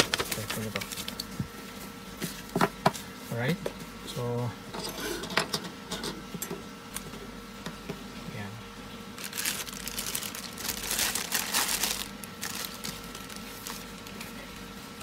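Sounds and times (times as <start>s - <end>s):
packaging crinkling: 0.0s - 1.4s, 9.1s - 14.4s.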